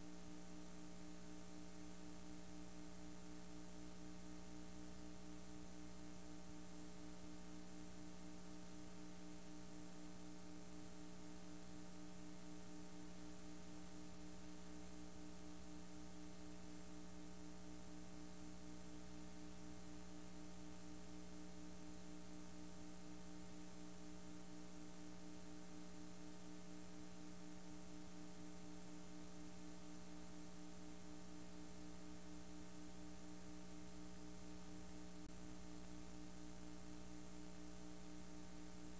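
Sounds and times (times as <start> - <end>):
faint electrical hum with tones: 0.0 - 38.9
tape hiss: 0.0 - 38.9.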